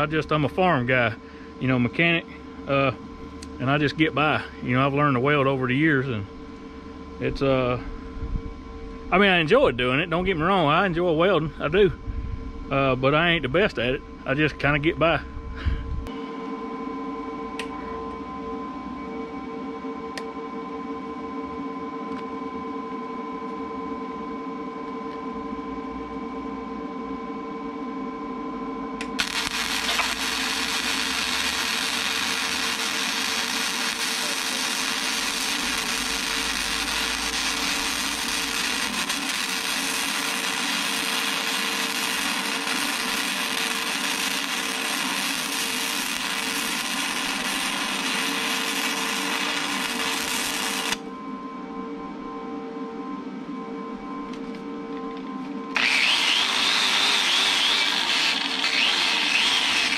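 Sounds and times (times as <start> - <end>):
welding arc crackling hiss: 0.0 - 1.0, 29.0 - 51.0, 55.8 - 59.9
welder humming: 0.0 - 18.2, 29.0 - 51.4, 54.0 - 59.9.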